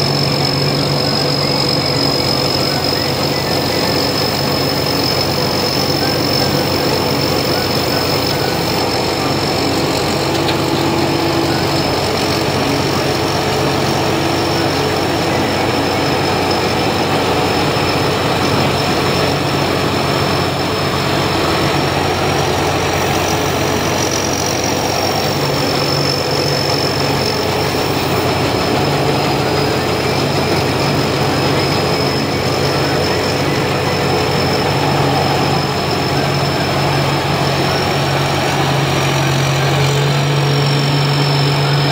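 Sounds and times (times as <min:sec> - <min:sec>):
harvester engine drone: 0:00.0 - 0:41.9
thin high whine: 0:00.0 - 0:41.9.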